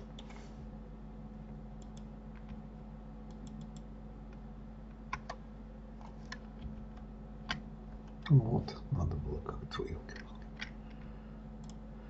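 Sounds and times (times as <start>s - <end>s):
steady low hum: 0.0s - 12.0s
computer mouse and keyboard clicks: 3.3s - 4.4s, 5.1s - 5.4s.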